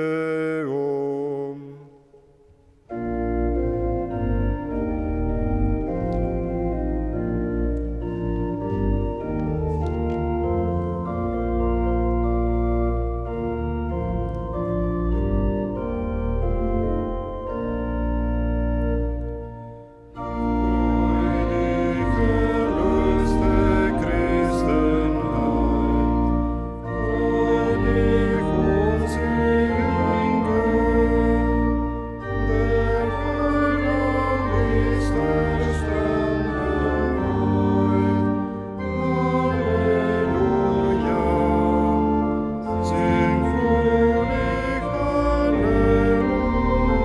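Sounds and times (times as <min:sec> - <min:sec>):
church organ chords: 0:00.0 - 0:47.0
people singing a hymn: 0:20.3 - 0:47.0.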